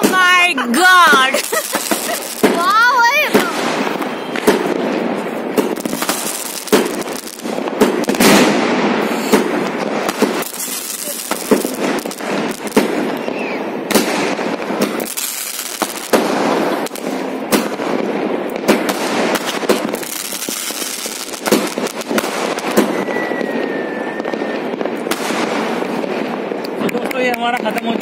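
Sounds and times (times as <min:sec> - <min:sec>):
firework bangs: 0:00.0 - 0:28.0
firework crackling: 0:00.0 - 0:28.0
thin firework whistle: 0:03.9 - 0:04.5, 0:09.0 - 0:09.4, 0:13.1 - 0:13.7, 0:22.6 - 0:24.8.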